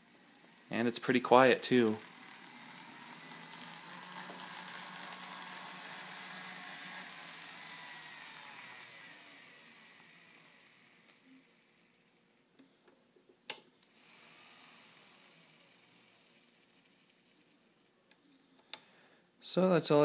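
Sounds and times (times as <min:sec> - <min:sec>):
small electric motor whirring: 0:00.0 - 0:12.1, 0:13.9 - 0:17.7.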